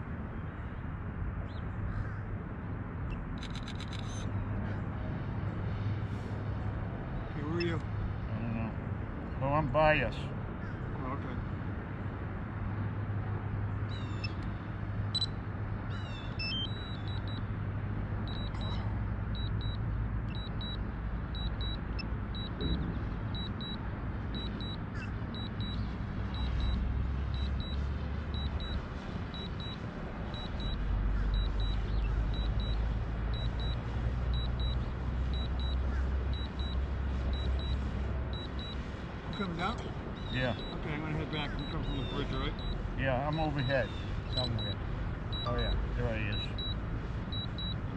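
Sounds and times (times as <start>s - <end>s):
road traffic rumble: 0.0s - 47.9s
quick chirps: 16.1s - 17.5s, 18.3s - 20.8s, 21.4s - 42.9s, 43.5s - 47.8s
high electronic double beep: 16.4s - 17.4s, 22.4s - 23.8s, 38.4s - 40.8s, 42.5s - 42.8s, 44.3s - 44.8s, 45.4s - 47.8s.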